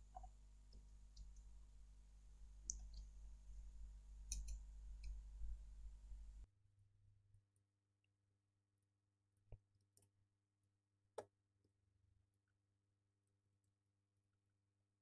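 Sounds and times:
low steady hum: 0.0 - 6.5.

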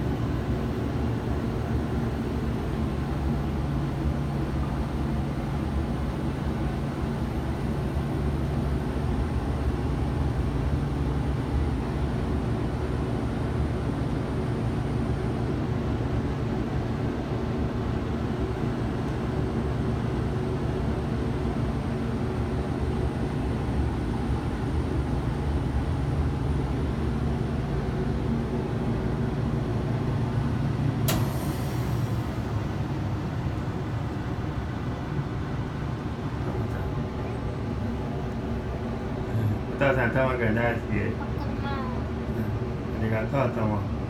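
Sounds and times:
gondola low rumble: 0.0 - 44.0
sharp click: 31.0 - 31.4.

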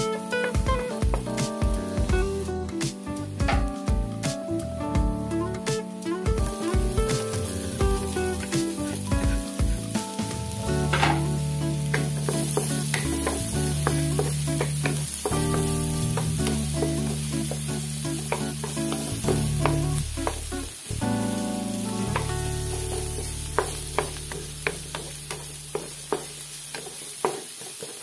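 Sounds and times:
onion sizzling in hot oil: 0.0 - 4.6, 5.2 - 28.0
background music with held notes: 0.0 - 26.4
wooden spatula stirring: 10.8 - 20.6, 22.1 - 28.0.

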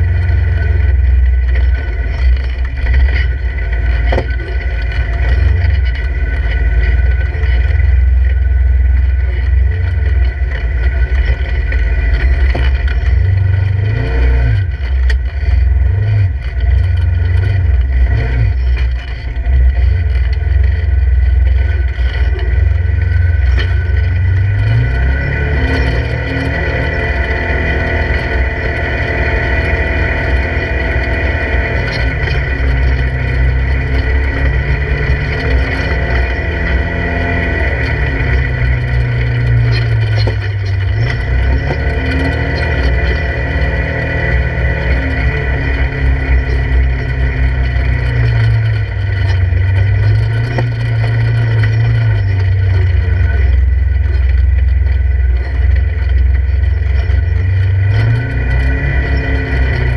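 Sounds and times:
engine revving under load: 0.0 - 59.9.

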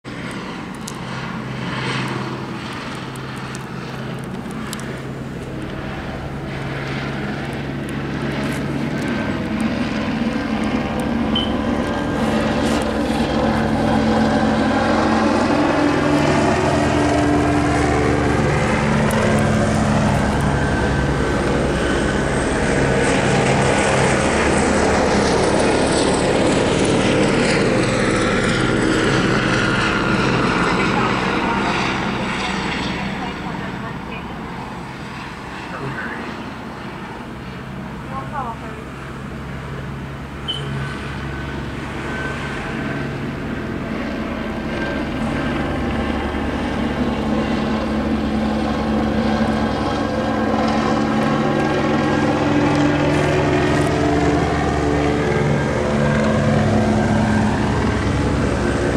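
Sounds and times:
helicopter rotor chopping: 0.0 - 58.9.

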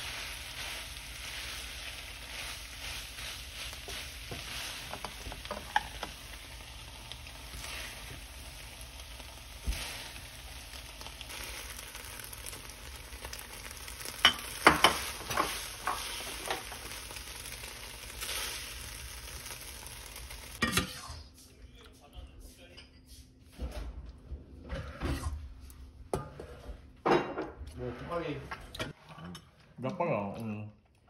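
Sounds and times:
pasta sizzling in a frying pan: 0.0 - 21.3
spatula scraping and tapping pan: 3.7 - 6.2, 14.2 - 16.8.

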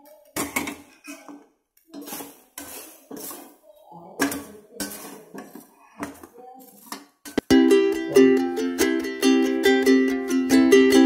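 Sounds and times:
metal spatula scraping steel pan: 1.9 - 7.4.

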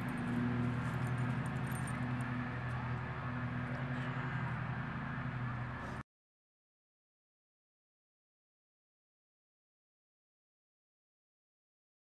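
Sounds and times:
low motor hum: 0.0 - 6.0
outdoor background noise: 0.0 - 6.0.

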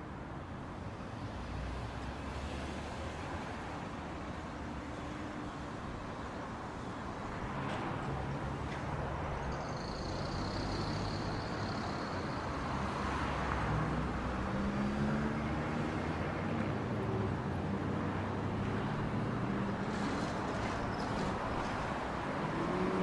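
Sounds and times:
traffic noise: 0.0 - 23.0
smaller truck passing: 10.0 - 23.0.

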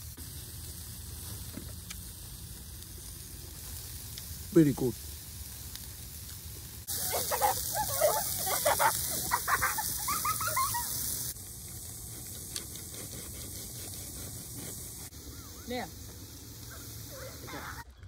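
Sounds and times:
sausages sizzling on a grill: 0.0 - 18.0
short chirping calls: 15.2 - 16.0.

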